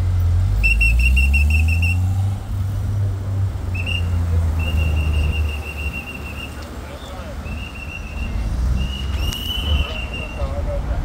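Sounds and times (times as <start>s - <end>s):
idling and passing vehicles: 0.0s - 11.0s
police whistle trilled blasts: 0.6s - 2.0s, 3.7s - 6.7s, 7.4s - 10.5s.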